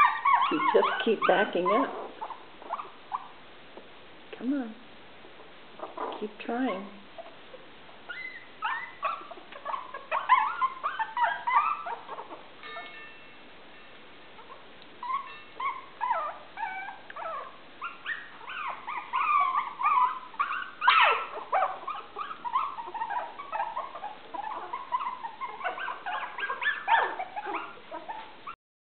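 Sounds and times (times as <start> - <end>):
puppies squeaky crying: 0.0 - 3.4, 5.8 - 6.2, 8.0 - 13.0, 14.4 - 28.6.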